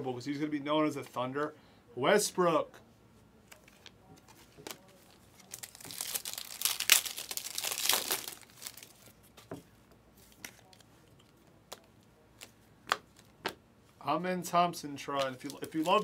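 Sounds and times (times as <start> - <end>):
foil wrapper crinkling: 4.6 - 9.2, 15.2 - 16.0
soft clicks of cards handled: 9.3 - 13.6.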